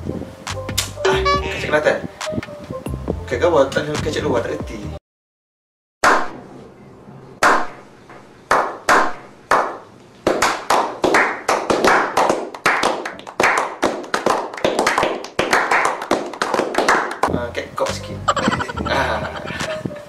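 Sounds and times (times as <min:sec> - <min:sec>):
group clapping: 0:08.5 - 0:17.4.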